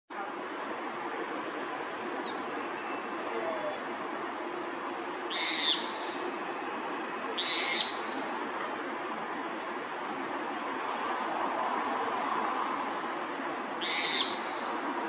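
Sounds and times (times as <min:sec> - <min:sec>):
birds chirping: 0:05.1 - 0:06.3, 0:07.4 - 0:09.4
harsh bird calls: 0:05.2 - 0:06.2, 0:07.4 - 0:08.3, 0:13.8 - 0:14.6.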